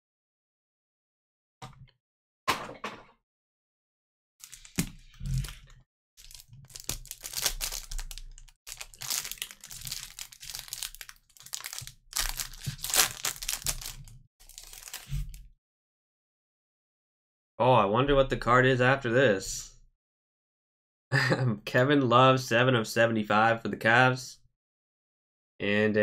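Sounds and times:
plastic wrapper crinkling: 4.4 - 15.4.

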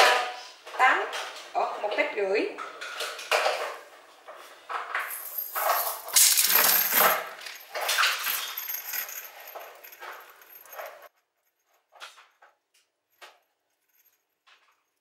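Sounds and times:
metal chain links jingling: 5.0 - 11.1.

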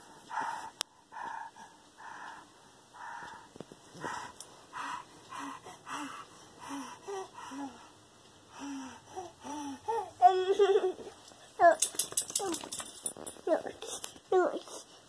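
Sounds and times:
excited breathing huffs: 0.0 - 10.3.

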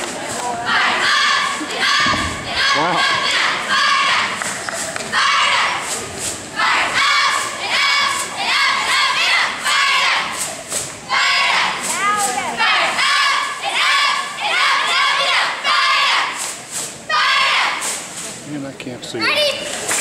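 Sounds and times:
children shouting a cheer: 0.7 - 4.4, 5.1 - 5.8, 6.6 - 10.4, 11.1 - 11.9, 12.6 - 16.4, 17.1 - 17.8.

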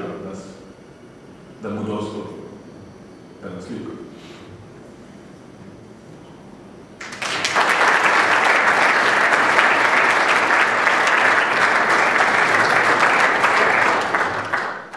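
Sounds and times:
audience applauding: 7.0 - 14.9.

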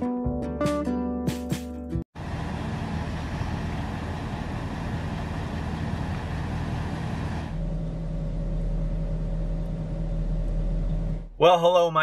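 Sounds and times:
truck engine idling: 2.2 - 11.3
outdoor low rumble: 2.2 - 11.4.

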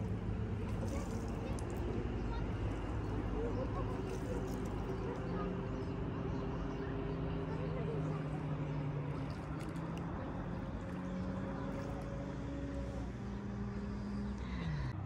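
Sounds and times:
boat engine drone: 0.0 - 15.0.

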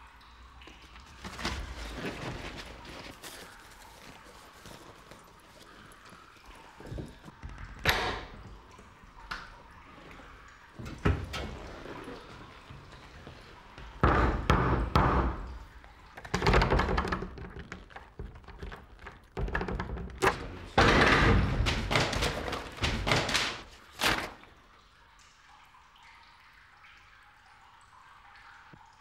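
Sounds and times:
banging on cubicle walls: 13.8 - 24.3.

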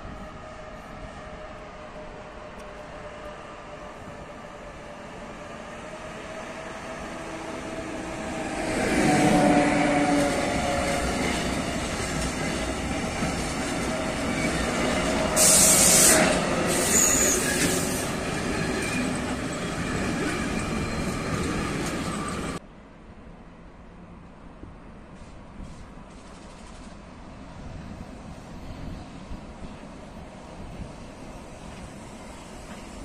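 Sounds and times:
train wheels rumbling on rails: 0.0 - 22.6, 25.0 - 33.0
high hissing bursts: 15.4 - 17.9
thin wheel squeal: 15.4 - 18.0.

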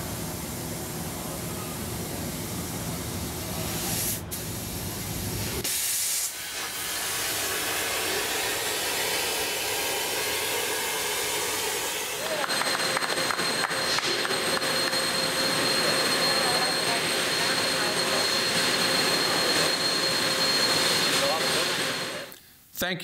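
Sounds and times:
plasma torch hissing: 3.5 - 12.4.

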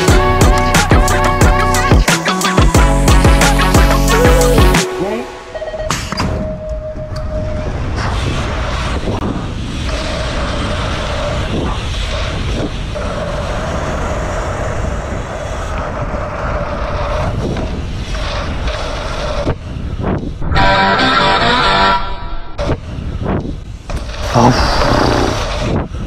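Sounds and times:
wind rushing over microphone: 6.3 - 20.6, 22.4 - 26.0
bike tyre noise: 7.7 - 20.5, 22.6 - 26.0.

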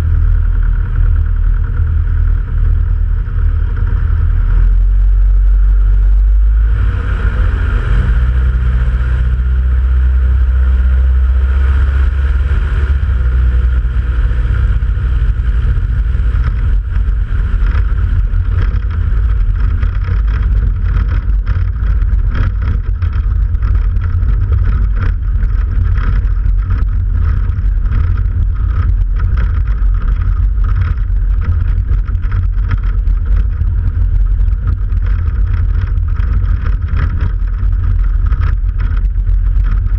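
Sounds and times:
light aircraft engine and propeller: 0.0 - 39.9.

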